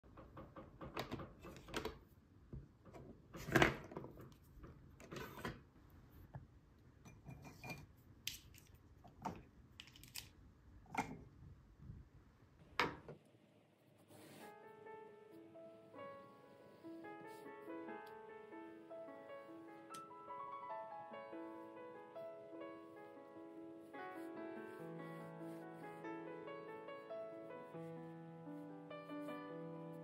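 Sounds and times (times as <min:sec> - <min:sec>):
desk items clacking and rattling: 0:00.1 - 0:02.1, 0:02.7 - 0:05.6
soft piano music: 0:14.2 - 0:30.0.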